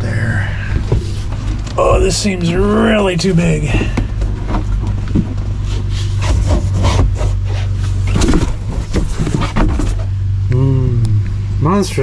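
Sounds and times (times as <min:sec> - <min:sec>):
board scraping and knocking on trim: 0:03.7 - 0:10.1.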